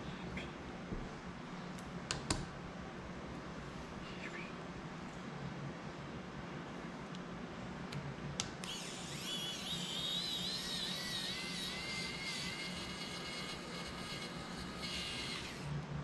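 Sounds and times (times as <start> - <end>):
electric screwdriver motor whine: 8.6 - 15.7.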